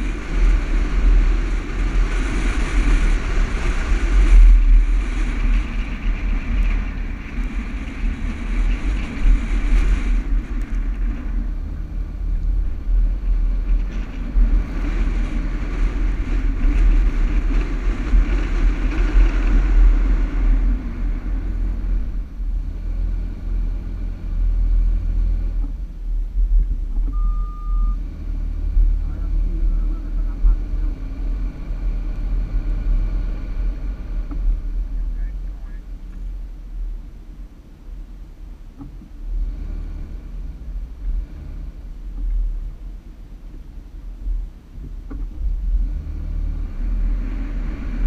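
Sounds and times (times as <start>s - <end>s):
vehicle engine under load: 0.0s - 48.0s
wind rumble on microphone: 0.0s - 48.0s
short beep: 27.1s - 28.0s.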